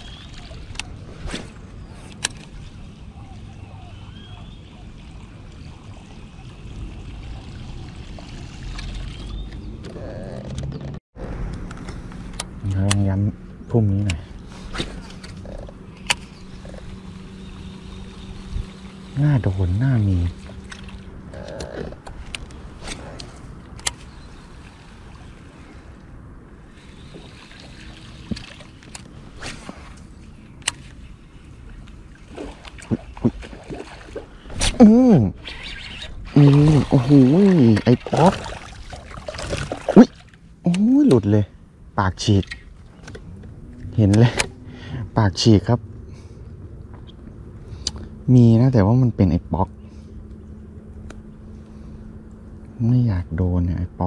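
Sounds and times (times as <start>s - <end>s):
water lapping at hull: 0.0s - 9.8s, 14.2s - 40.6s
wind rumble on microphone: 14.8s - 18.9s.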